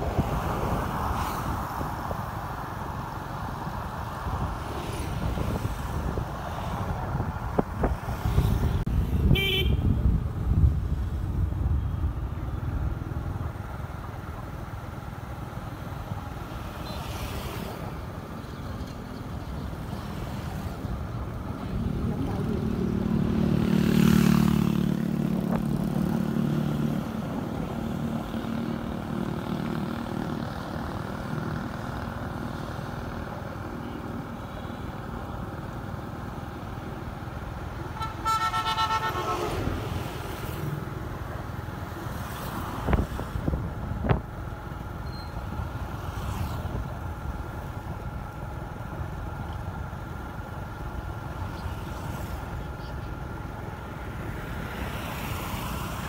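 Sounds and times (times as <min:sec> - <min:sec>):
vehicle engine and road noise: 0:00.0 - 0:56.0
vehicle horn honking: 0:09.3 - 0:09.9, 0:38.0 - 0:39.6.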